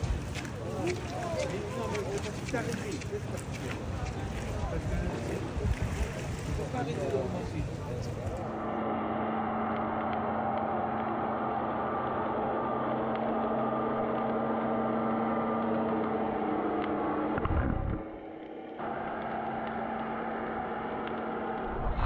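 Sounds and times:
muffled boat motor underwater: 0:00.0 - 0:22.0.

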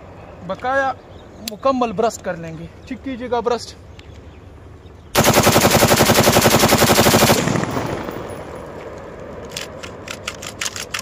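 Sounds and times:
rifle firing automatic burst: 0:05.2 - 0:08.3.

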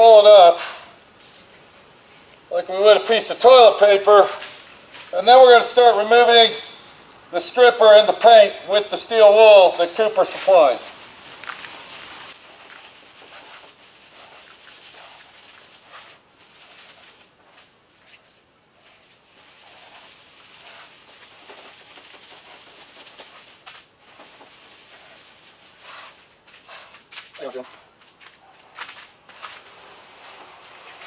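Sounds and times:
steel wool scrubbing: 0:08.9 - 0:27.6, 0:29.2 - 0:31.0.

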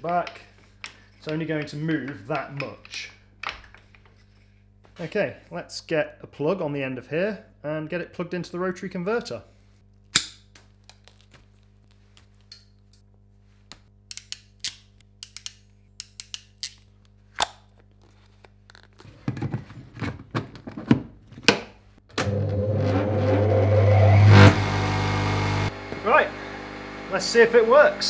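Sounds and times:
wire cutters snipping: 0:10.1 - 0:11.2, 0:14.1 - 0:17.8
phase converter humming: 0:23.0 - 0:28.0.

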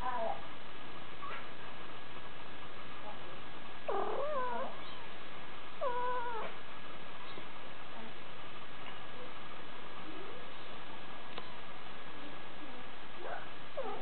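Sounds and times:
steady background hiss: 0:00.0 - 0:14.0
kitten mewing: 0:03.9 - 0:05.0, 0:05.8 - 0:06.6.

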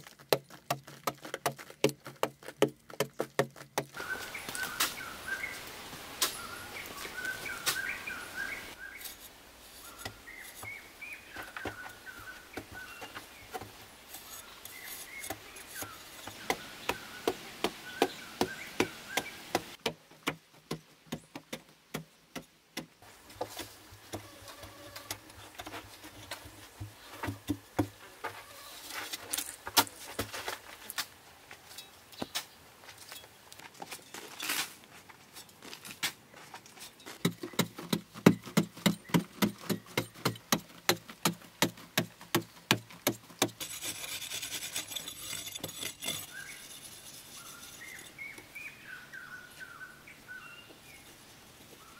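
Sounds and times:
birds chirping: 0:03.9 - 0:09.2, 0:09.8 - 0:19.8, 0:36.3 - 0:40.8, 0:43.6 - 0:51.9
hoe chopping hard earth: 0:37.2 - 0:46.6.

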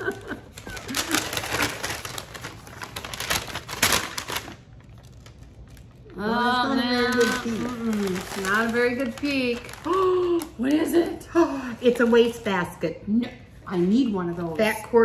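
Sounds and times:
wrapping paper tearing and rustling: 0:00.0 - 0:06.2, 0:06.8 - 0:11.1.

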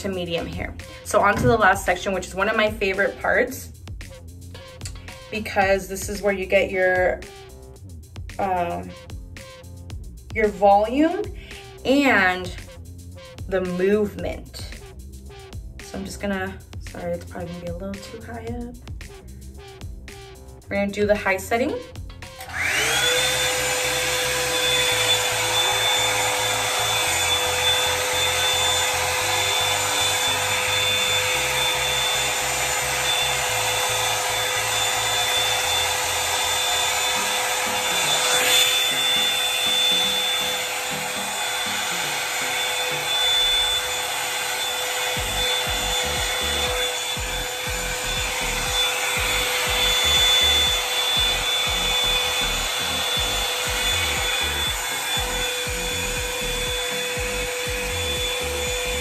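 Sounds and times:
hot-air brush running: 0:00.0 - 0:03.7, 0:20.9 - 0:59.0.

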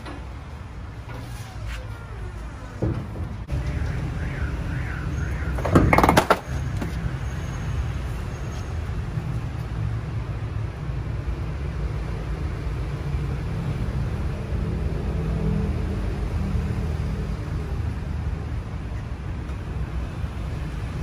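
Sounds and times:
vehicle engine rumbling: 0:00.0 - 0:21.0
loud knocks clattering: 0:05.6 - 0:06.5.

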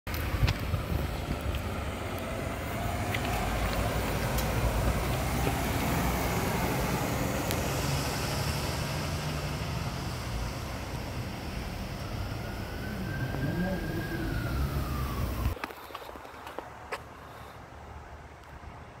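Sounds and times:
diesel truck engine accelerating: 0:00.1 - 0:16.9.

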